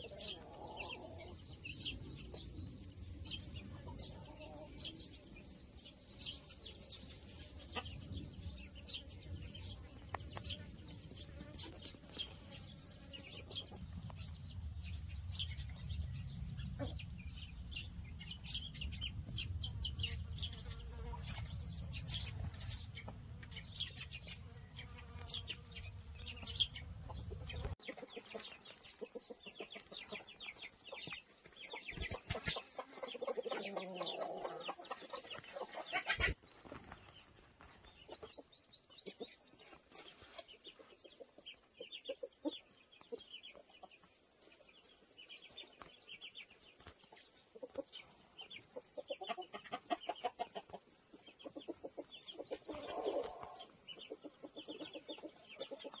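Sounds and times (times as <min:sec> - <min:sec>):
chickens clucking: 0:00.0 - 0:56.0
small birds chirping: 0:00.0 - 0:56.0.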